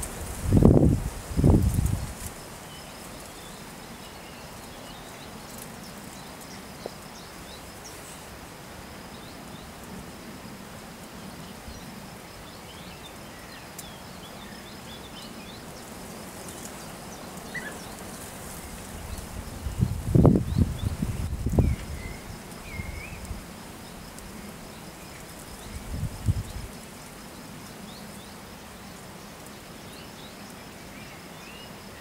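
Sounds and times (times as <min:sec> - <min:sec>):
soft even hiss: 0:00.0 - 0:32.0
faint bird chirps: 0:17.2 - 0:18.0.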